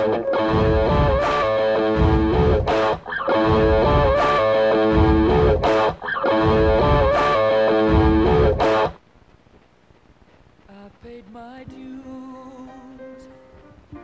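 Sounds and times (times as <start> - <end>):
distorted electric guitar solo: 0.0 - 9.0
stomp and clap beat: 0.0 - 9.0.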